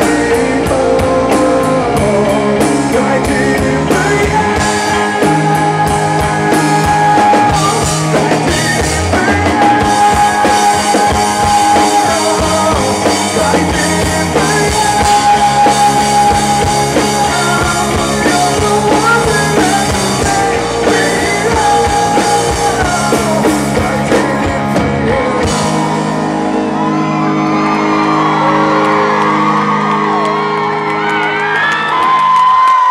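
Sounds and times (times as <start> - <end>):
man singing: 0.0 - 26.3
bass guitar: 0.0 - 32.9
drum kit: 0.0 - 32.9
electric guitars: 0.0 - 32.9.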